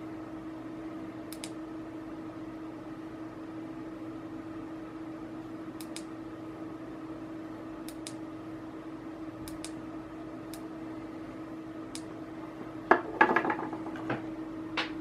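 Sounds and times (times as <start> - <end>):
steady low hum: 0.0 - 15.0
plastic light clattering on table: 12.9 - 14.2.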